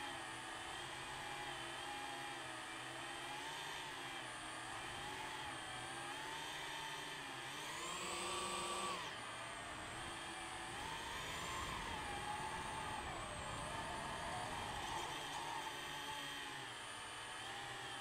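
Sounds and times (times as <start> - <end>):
drone motors whining: 4.6 - 18.0.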